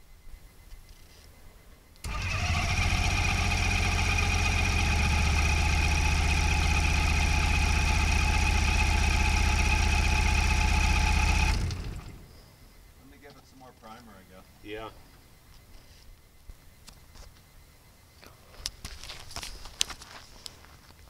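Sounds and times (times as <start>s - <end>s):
engine starting and running: 2.0s - 12.4s.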